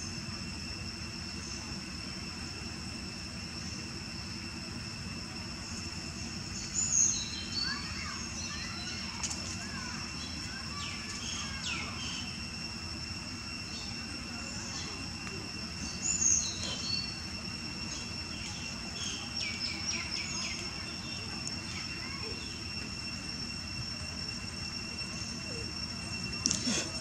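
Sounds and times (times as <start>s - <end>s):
insect drone: 0.0s - 27.0s
bird chirps: 5.6s - 12.4s, 15.7s - 22.8s.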